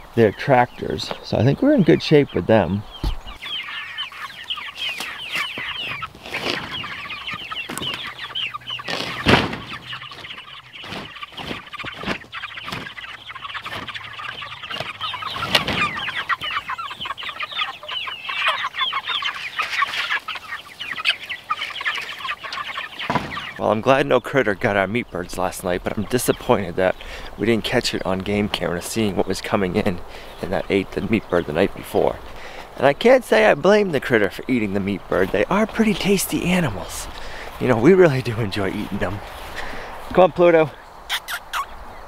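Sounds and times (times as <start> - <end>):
chicks peeping: 0.0 - 42.0
knocks on wooden coop: 9.2 - 9.7, 23.1 - 23.5.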